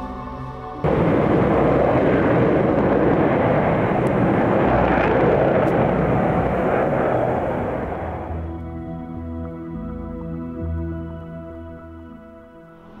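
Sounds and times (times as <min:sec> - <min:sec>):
jet fighters flying overhead: 0:00.8 - 0:08.8.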